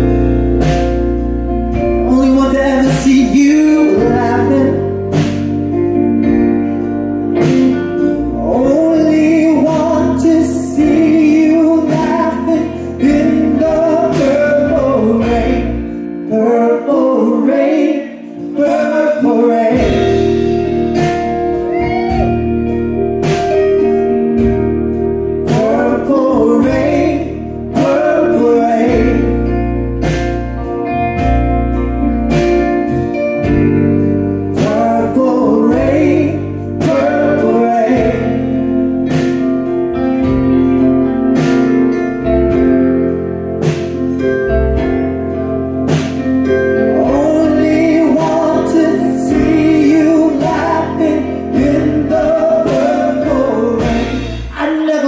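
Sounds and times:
bass guitar: 0.0 - 55.0
drums: 0.0 - 55.0
electric guitar: 0.0 - 55.0
keyboard: 0.0 - 55.0
man singing: 1.9 - 5.2, 8.2 - 22.4, 25.4 - 30.2, 34.5 - 39.3, 46.8 - 55.0.

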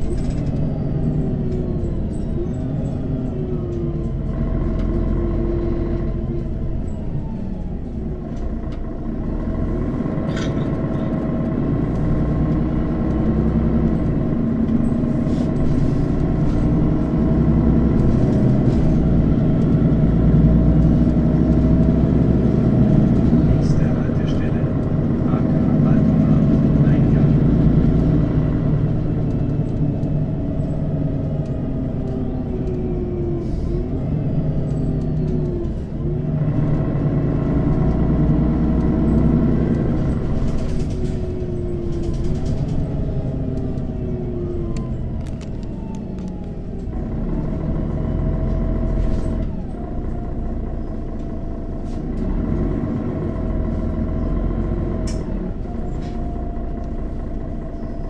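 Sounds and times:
bus diesel engine accelerating: 0.0 - 58.0.

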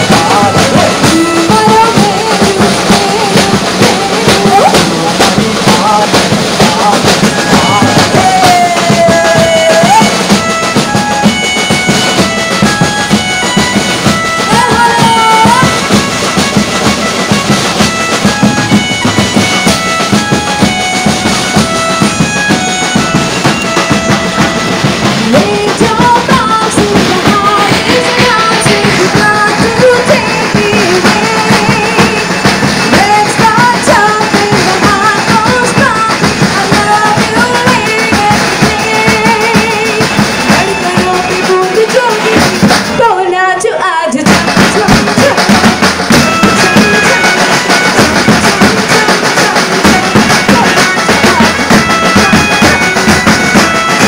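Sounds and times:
person singing: 0.0 - 11.0, 14.3 - 16.0, 25.0 - 54.0
sustained instrumental tones: 0.0 - 43.4, 44.2 - 54.0
fast drum beat: 0.0 - 54.0.

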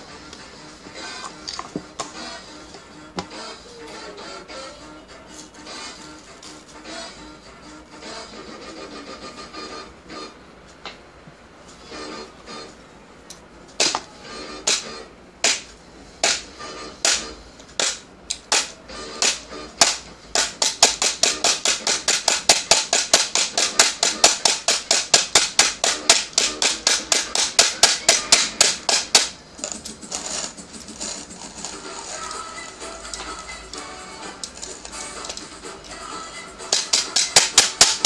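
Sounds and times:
hand coffee grinder crunching beans: 29.6 - 32.3.

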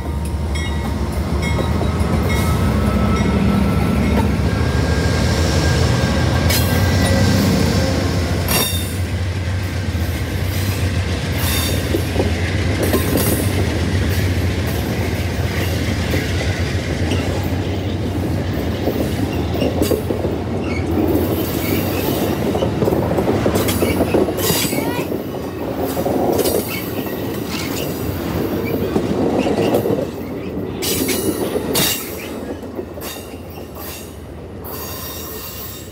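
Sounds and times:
train wheels clicking over rail joints: 0.0 - 4.8, 8.4 - 35.9
train wheels squealing on rails: 0.0 - 9.2, 10.0 - 35.9
diesel locomotive engine hum: 0.0 - 35.9.

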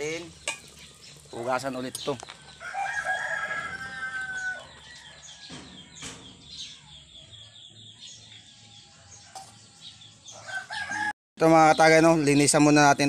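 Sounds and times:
rooster crowing: 2.4 - 6.0, 8.7 - 11.2.

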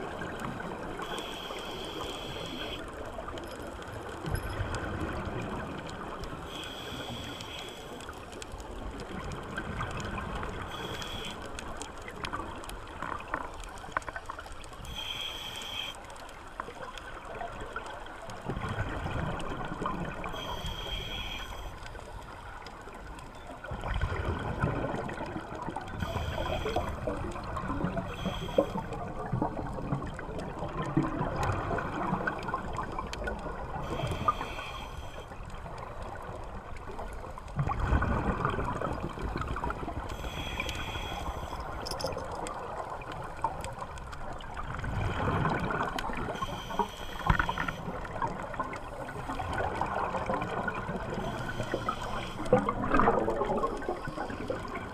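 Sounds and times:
regulator inhalation hiss: 1.0 - 2.9, 6.5 - 8.1, 10.7 - 11.5, 14.8 - 16.1, 20.3 - 21.8, 33.9 - 35.3, 40.1 - 41.8, 46.4 - 47.9, 51.2 - 52.5
exhaled bubbles gurgling: 8.1 - 14.8, 16.8 - 21.4, 22.9 - 54.9.

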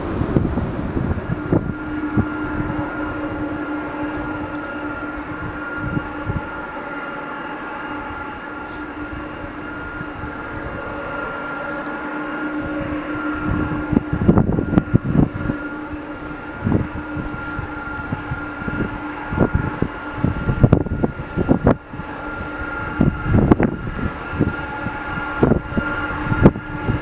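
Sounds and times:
jet engine whine and rumble: 0.0 - 27.0
wind buffeting microphone: 0.0 - 27.0.

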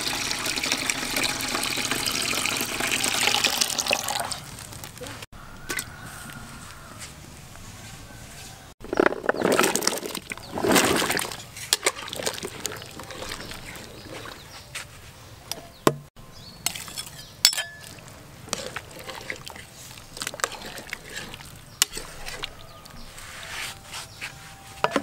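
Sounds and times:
food splashing into liquid: 9.4 - 14.4
metal spoon clinking on pot: 16.6 - 18.0.

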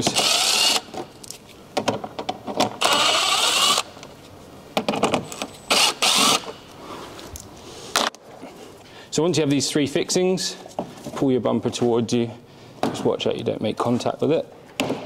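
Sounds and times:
impact wrench bursts: 0.0 - 1.0, 2.8 - 3.9, 5.3 - 6.6.

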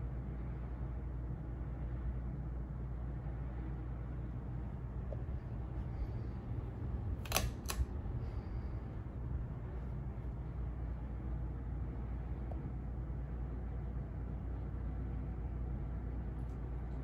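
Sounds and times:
ceiling fan humming: 0.0 - 17.0
sharp clicks: 7.2 - 7.9.

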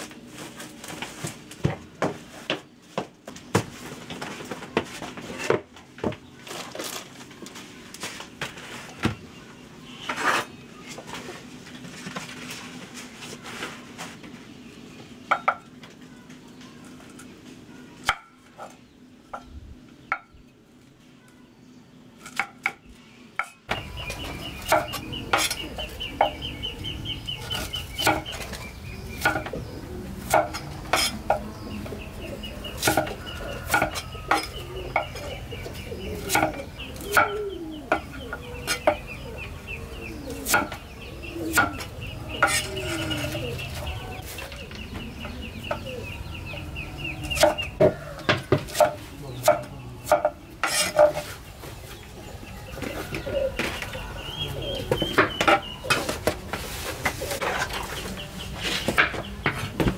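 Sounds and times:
chickens clucking: 22.4 - 59.9.

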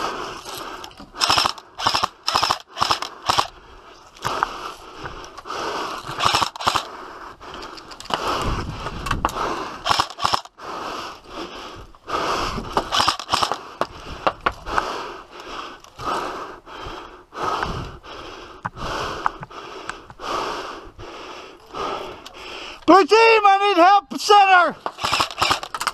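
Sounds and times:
airsoft guns firing: 1.2 - 3.6, 6.2 - 6.9, 9.8 - 10.5, 12.8 - 13.7, 24.8 - 25.9.

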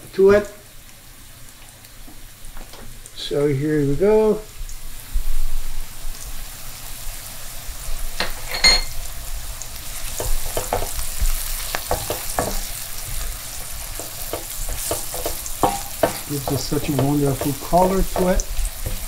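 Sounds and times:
onions sizzling in oil: 0.0 - 19.0
metallic clink: 8.4 - 9.0
knocks against a pan: 10.2 - 11.0, 14.3 - 19.0
utensil stirring and scraping: 13.4 - 19.0.

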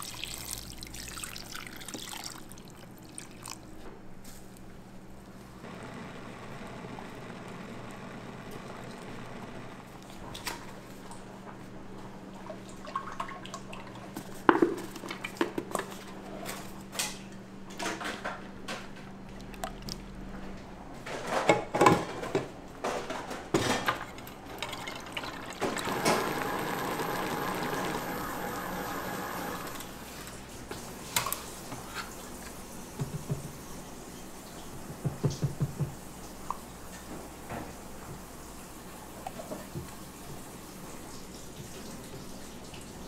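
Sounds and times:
liquid pouring: 0.0 - 3.7, 24.4 - 29.6.

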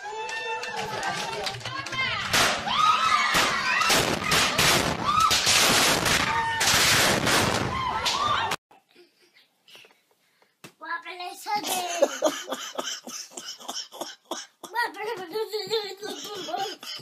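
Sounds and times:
people shrieking: 2.7 - 5.5
firework bangs and crackling: 3.3 - 7.8.

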